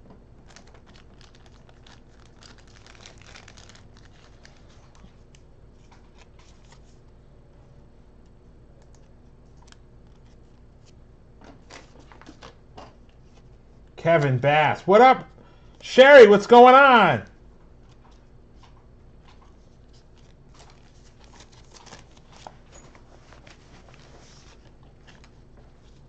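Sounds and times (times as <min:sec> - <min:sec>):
plastic card sleeve crinkling: 0:00.4 - 0:07.0, 0:08.8 - 0:11.0, 0:19.8 - 0:26.0.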